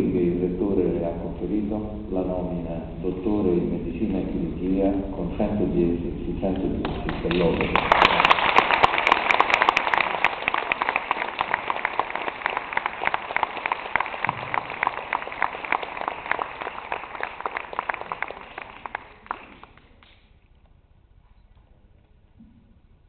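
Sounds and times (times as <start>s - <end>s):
audience clapping: 6.6s - 20.2s.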